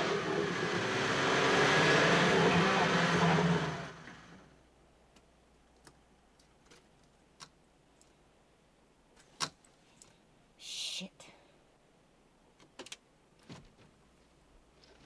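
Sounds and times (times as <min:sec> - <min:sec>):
car engine and spinning wheels: 0:00.0 - 0:04.6
faint clicks and ticks: 0:05.1 - 0:08.2.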